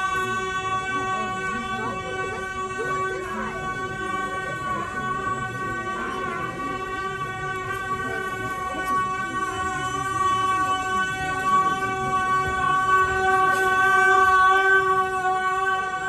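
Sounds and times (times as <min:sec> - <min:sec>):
long reedy held note: 0:00.0 - 0:16.0.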